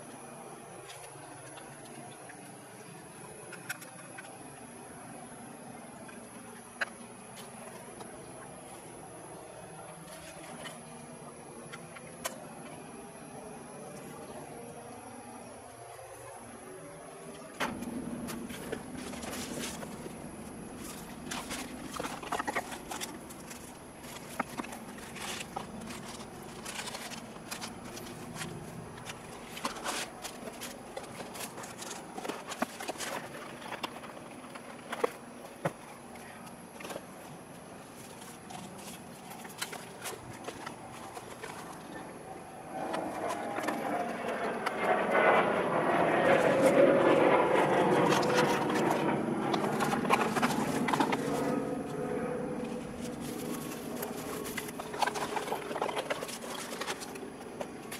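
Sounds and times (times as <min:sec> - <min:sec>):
low steady hum: 0:00.0 - 0:57.9
packaging rustling and clicking: 0:17.8 - 0:35.8, 0:48.0 - 0:57.9
distant passing engine: 0:41.8 - 0:56.1.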